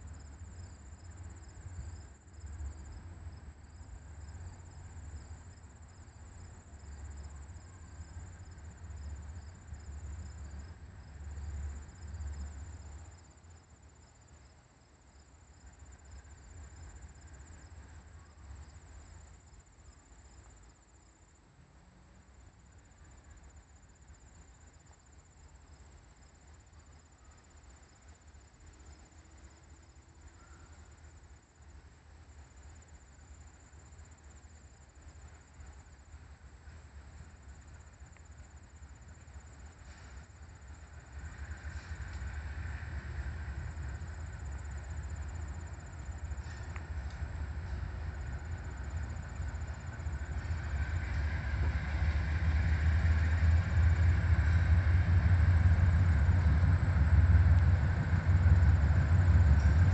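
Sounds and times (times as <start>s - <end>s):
low rumble: 46.0s - 59.9s.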